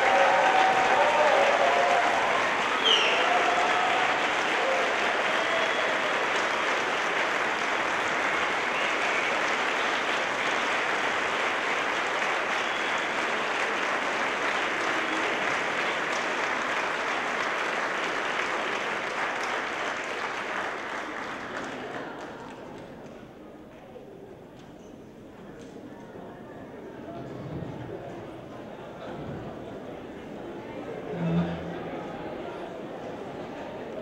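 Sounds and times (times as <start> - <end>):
audience applauding: 0.0 - 23.1.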